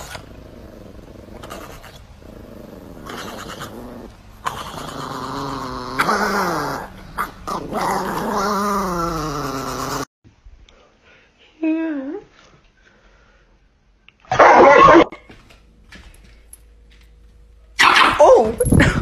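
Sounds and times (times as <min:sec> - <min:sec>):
small dog growl-moaning: 0:00.0 - 0:10.1.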